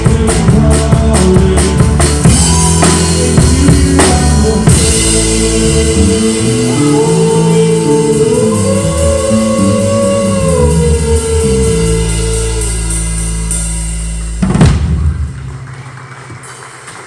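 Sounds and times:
drum and cymbal hit: 0.0s - 9.2s.

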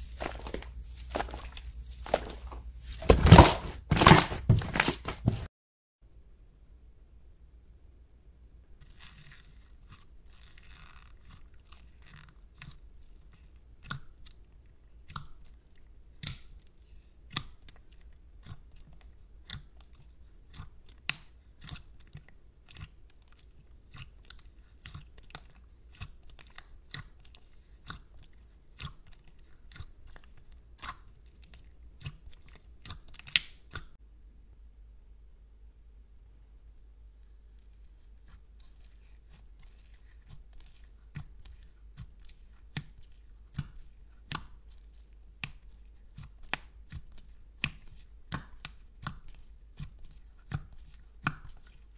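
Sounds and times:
slime squished by hand: 0.0s - 5.0s.

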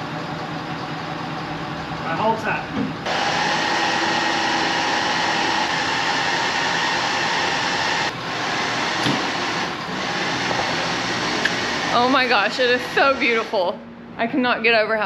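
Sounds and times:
mechanical whir: 3.0s - 13.5s.

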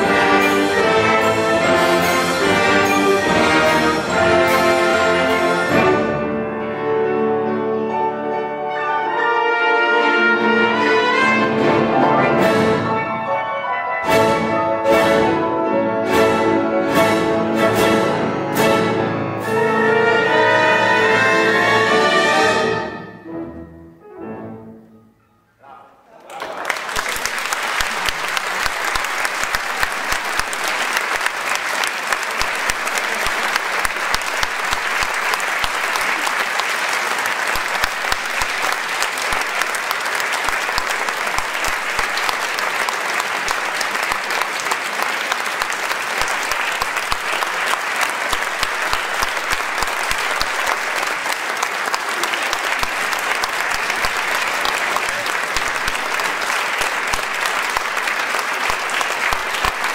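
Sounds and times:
audience applauding: 0.0s - 6.1s, 26.2s - 59.9s.

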